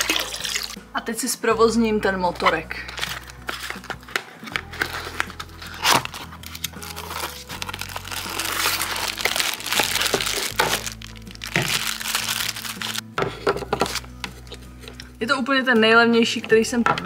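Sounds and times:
background music: 0.0 - 17.0
cardboard box rustling: 2.9 - 13.0
plastic packaging crinkling: 4.6 - 13.0.

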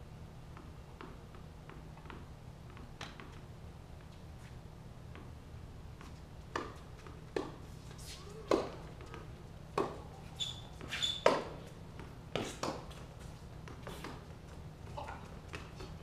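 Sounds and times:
racquets hitting tennis ball: 5.9 - 16.0
ball bouncing: 6.0 - 7.6
sneaker squeaks: 6.6 - 14.3.

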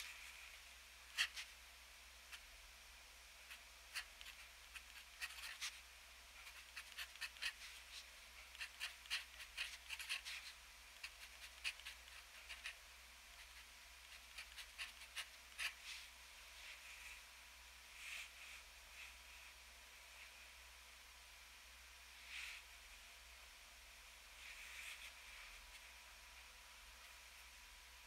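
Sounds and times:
pen scratching on paper: 3.9 - 5.8, 6.4 - 7.8, 8.5 - 12.8, 13.4 - 15.8.

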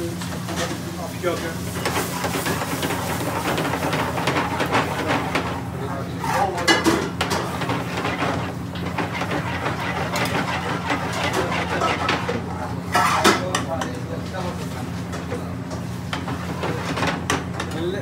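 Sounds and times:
metal spoon scraping frying pan: 1.8 - 13.5.

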